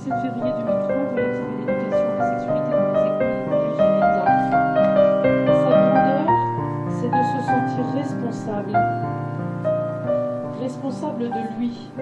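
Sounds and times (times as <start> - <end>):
low piano bass note: 0.0 - 11.8
piano music: 0.0 - 12.0.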